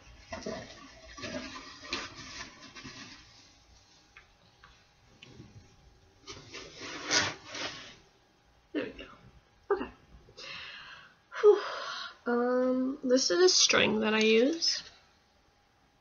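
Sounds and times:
handling noise rustling: 0:00.3 - 0:08.1.

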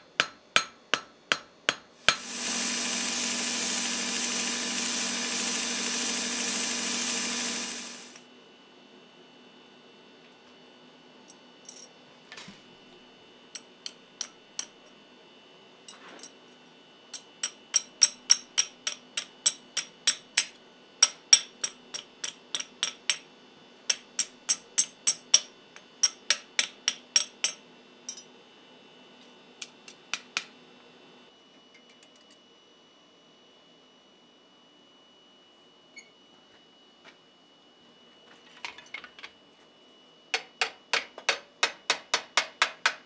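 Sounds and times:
hammer striking steel on anvil: 0:00.0 - 0:02.4, 0:17.1 - 0:23.3, 0:23.9 - 0:28.3, 0:40.4 - 0:43.0.

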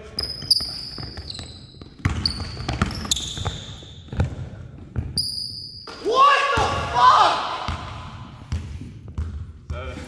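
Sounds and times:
shoes squeaking on floor: 0:00.0 - 0:05.9
basketball bouncing on wooden floor: 0:00.4 - 0:05.2, 0:07.7 - 0:09.8.

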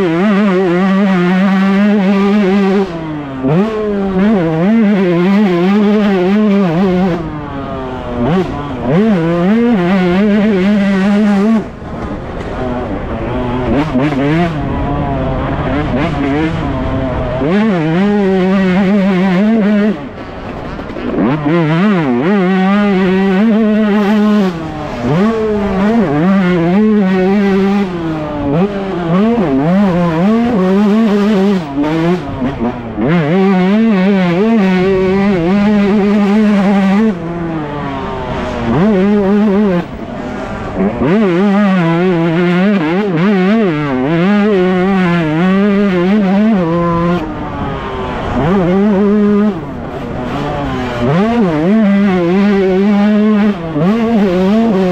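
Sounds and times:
motocross engine revving: 0:00.0 - 0:54.9.

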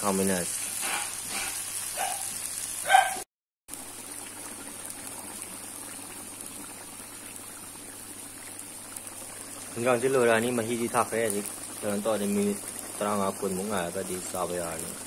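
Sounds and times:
curry sizzling in oil: 0:00.0 - 0:15.0
curry boiling in broth: 0:03.7 - 0:15.0.

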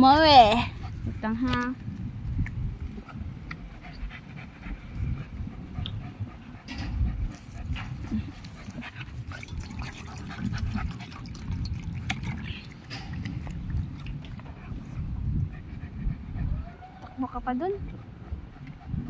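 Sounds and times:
dog lapping water: 0:07.6 - 0:15.7.

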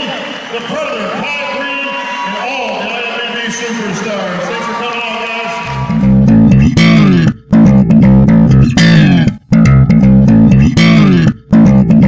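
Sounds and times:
loud rock music: 0:05.7 - 0:12.0.

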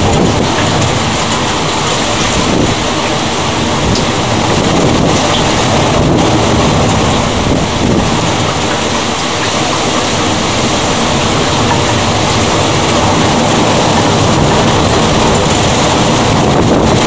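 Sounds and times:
rain and wind rushing: 0:00.0 - 0:17.0
low rumble: 0:10.0 - 0:17.0.

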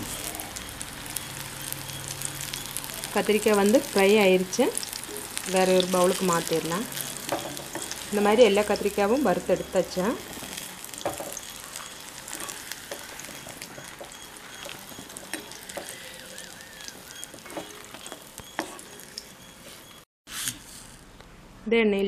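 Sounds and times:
hot oil sizzling: 0:00.0 - 0:20.1
metal ladle knocking against pan: 0:07.3 - 0:08.0, 0:11.0 - 0:11.4.

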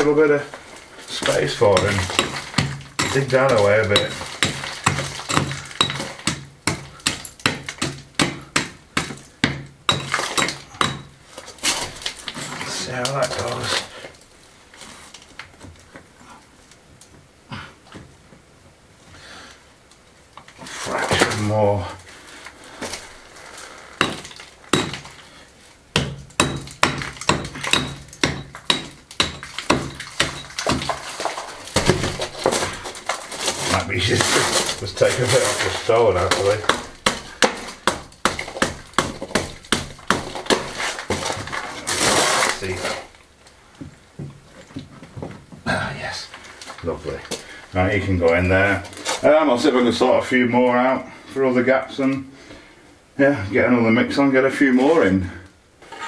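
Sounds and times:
hand tool chipping stone and mortar: 0:01.1 - 0:13.9, 0:23.9 - 0:25.2, 0:25.9 - 0:43.1.

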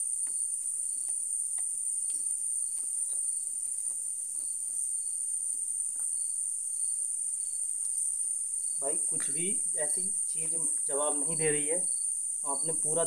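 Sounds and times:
faint ticks: 0:00.0 - 0:09.4
crickets chirring: 0:00.0 - 0:13.0.

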